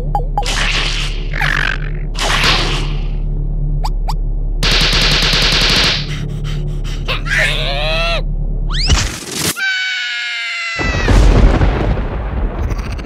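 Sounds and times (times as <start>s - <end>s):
low steady rumble: 1.2s - 8.8s
high-pitched scream: 9.6s - 11.2s.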